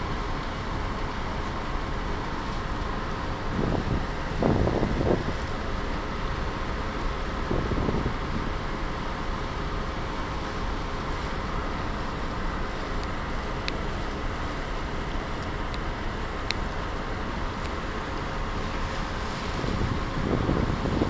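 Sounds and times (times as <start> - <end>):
low machinery rumble: 0.0 - 21.0
wind noise on microphone: 3.3 - 6.0, 7.3 - 8.7, 18.8 - 21.0.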